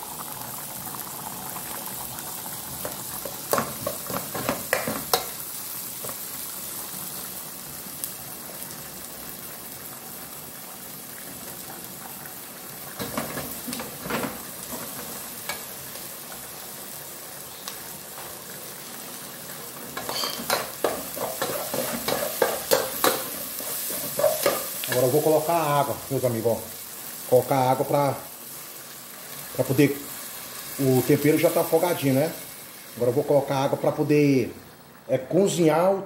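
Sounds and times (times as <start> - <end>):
vegetables sizzling in hot oil: 0.0 - 35.6
metal spoon scraping a pot: 20.0 - 22.8.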